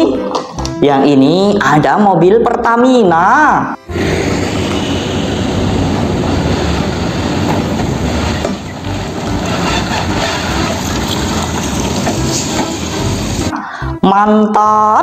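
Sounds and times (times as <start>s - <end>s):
tanker trucks driving past: 3.8s - 13.5s
diesel engines running: 3.8s - 14.0s
tyre noise: 3.9s - 13.5s.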